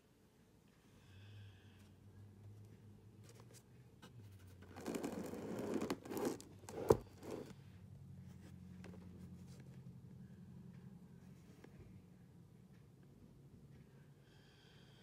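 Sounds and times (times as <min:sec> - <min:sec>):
phone handling scraping: 0:04.7 - 0:07.5.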